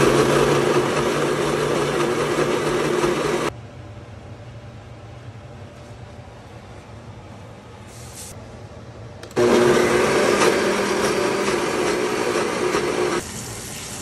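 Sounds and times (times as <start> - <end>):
blender motor running: 0.0 - 3.5, 9.4 - 13.6.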